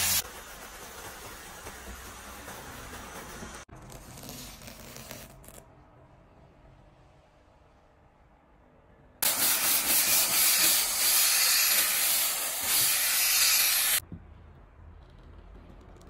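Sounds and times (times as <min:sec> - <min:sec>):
steam cleaner hissing: 0:00.0 - 0:03.7, 0:09.2 - 0:14.0.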